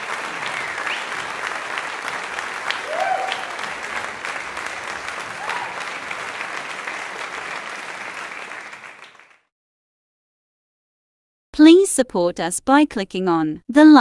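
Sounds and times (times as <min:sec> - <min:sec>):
crowd applause: 0:00.0 - 0:09.5.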